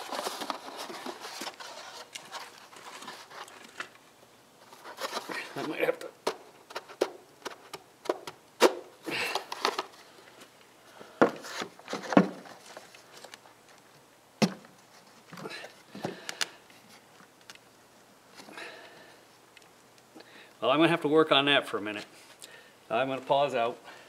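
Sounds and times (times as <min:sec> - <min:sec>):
plastic scraping and rubbing: 0:00.0 - 0:04.0, 0:04.6 - 0:08.3.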